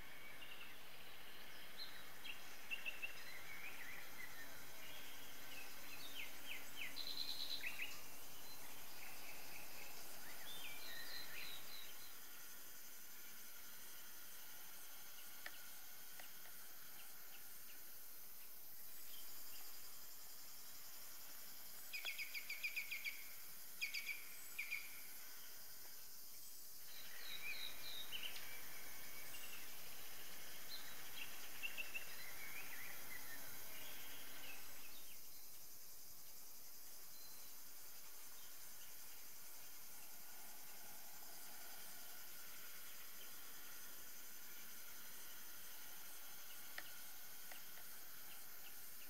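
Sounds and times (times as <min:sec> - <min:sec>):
bird chirping: 0:00.0 - 0:12.6, 0:21.2 - 0:25.6, 0:26.4 - 0:35.6
birdsong: 0:00.0 - 0:35.7
high insect hiss: 0:00.0 - 0:49.0.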